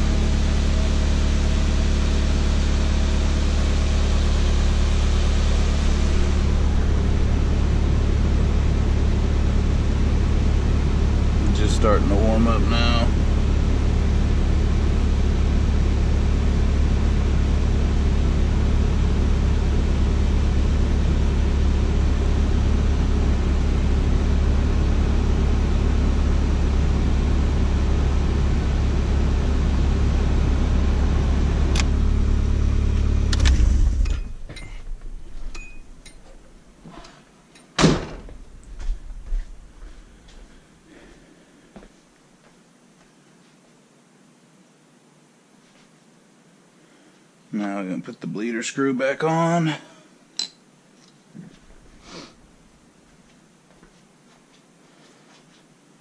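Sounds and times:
car engine idling: 0.0 - 37.2, 38.2 - 40.6
loud knock: 37.8 - 38.4.

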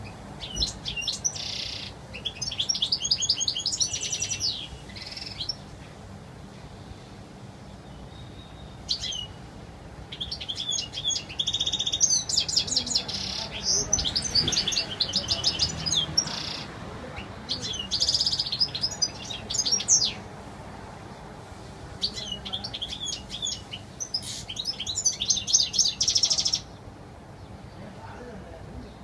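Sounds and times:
goldfinch twittering song: 0.0 - 5.8, 7.7 - 9.4, 10.1 - 20.3, 22.0 - 26.8.

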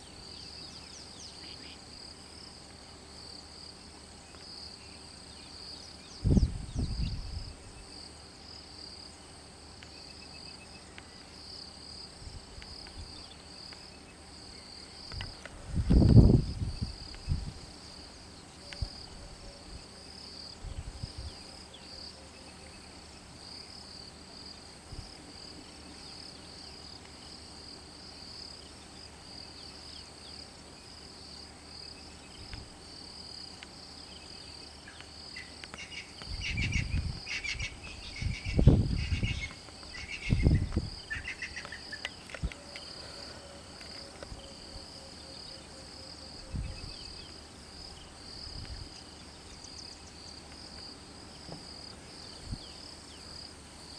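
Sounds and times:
insect chorus trilling: 0.0 - 53.9
small birds chirping: 34.0 - 44.6.

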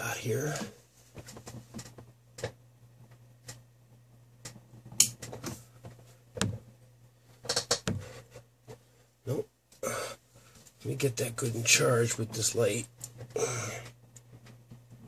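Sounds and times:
steady low hum: 0.0 - 15.0
handling clicks and knocks: 7.4 - 8.1.

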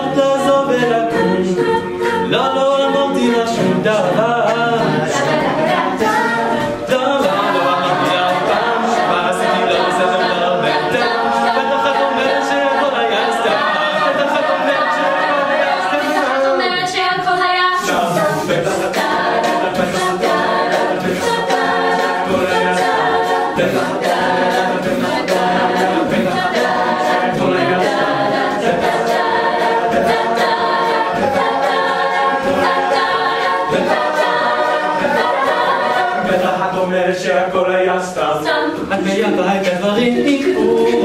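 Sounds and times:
a cappella group singing: 0.0 - 41.0
vocal percussion beat: 0.0 - 41.0.

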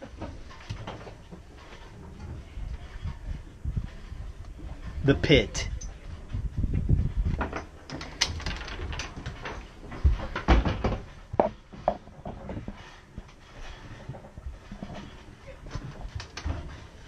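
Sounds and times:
heavy thumps: 9.8 - 12.9.

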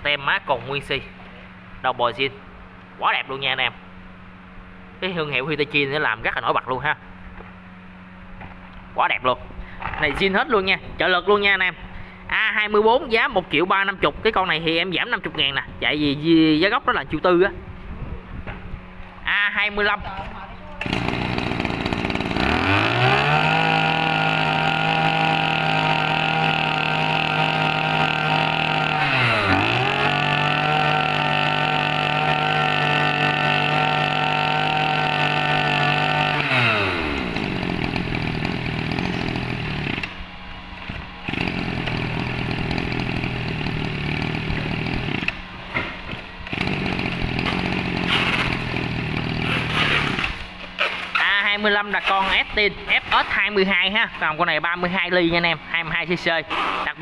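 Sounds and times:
brush cutter engine revving: 20.8 - 51.4.

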